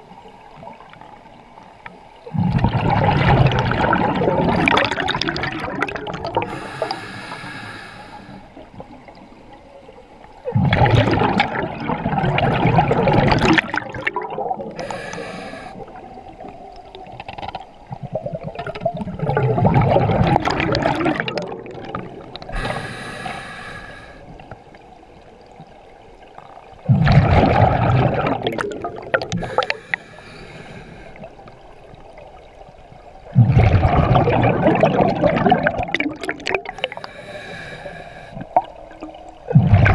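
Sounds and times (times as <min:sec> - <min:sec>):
exhaled bubbles rushing: 0:02.2 - 0:07.0, 0:10.4 - 0:15.0, 0:15.8 - 0:23.4, 0:26.3 - 0:29.9, 0:33.2 - 0:37.1, 0:37.8 - 0:39.9
regulator hissing inhale: 0:06.4 - 0:08.6, 0:14.8 - 0:15.9, 0:22.5 - 0:24.4, 0:29.4 - 0:31.4, 0:36.8 - 0:38.5.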